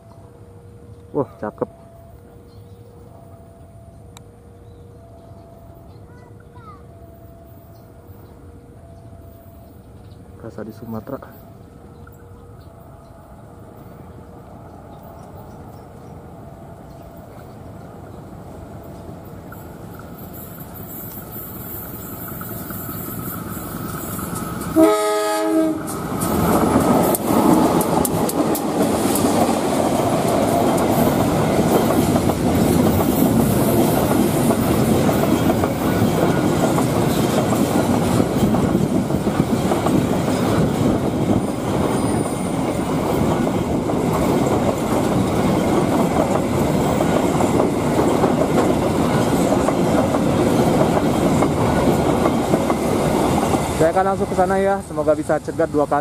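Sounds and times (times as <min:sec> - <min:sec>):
train wheels rumbling on rails: 0:09.4 - 0:56.0
wagons clacking over rail joints: 0:18.9 - 0:56.0
locomotive horn blast: 0:24.7 - 0:26.0.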